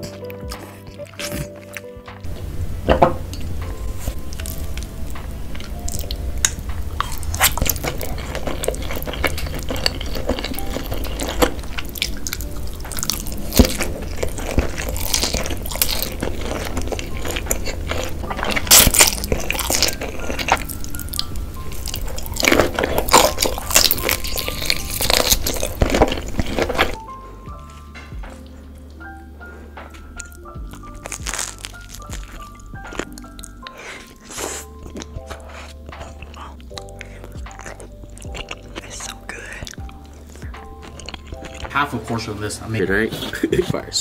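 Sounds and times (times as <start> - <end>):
slurping and chewing: 0.0 - 2.4, 3.2 - 27.0, 30.2 - 42.1
background music: 0.0 - 44.0
mouth clicks and squishes: 31.1 - 41.7.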